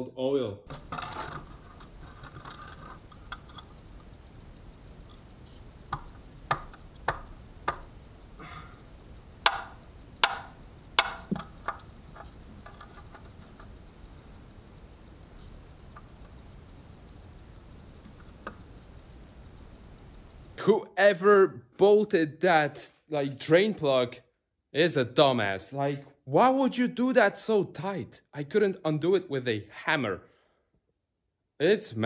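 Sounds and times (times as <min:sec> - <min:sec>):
hammer striking a wrench: 0:09.4 - 0:11.8.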